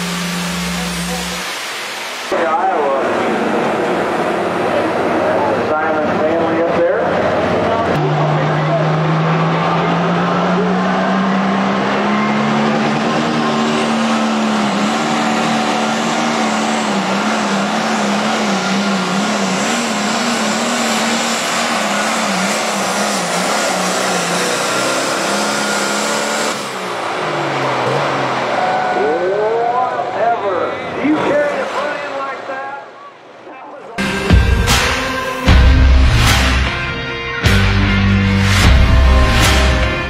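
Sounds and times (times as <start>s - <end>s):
tractor engine at full throttle: 0.0s - 32.6s, 34.0s - 40.0s.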